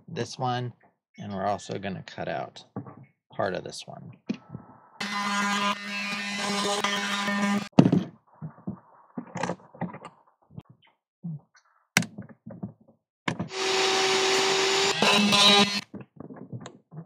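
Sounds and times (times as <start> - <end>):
cordless power tool running: 13.5 - 15.8.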